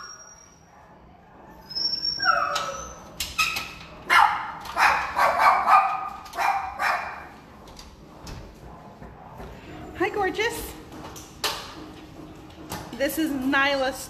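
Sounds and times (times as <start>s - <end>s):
dog whining: 0.0s - 0.8s, 1.4s - 5.8s
dog barking sharply: 4.1s - 7.2s.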